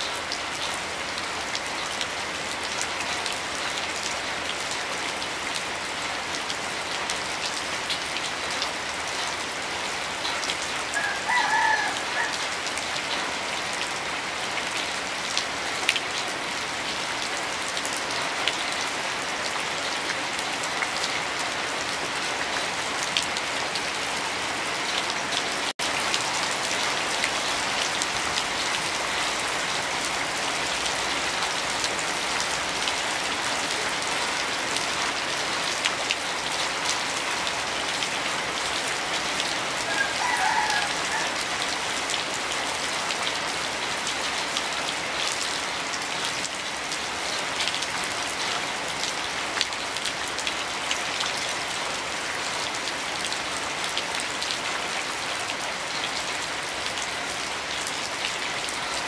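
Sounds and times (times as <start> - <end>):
heavy rain on hard surface: 0.0 - 59.0.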